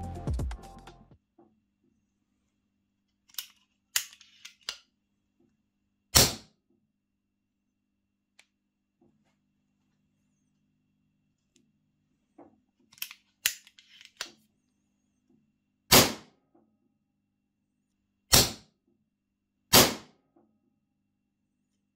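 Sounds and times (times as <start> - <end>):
suppressed air pistol shot: 19.7 - 20.1.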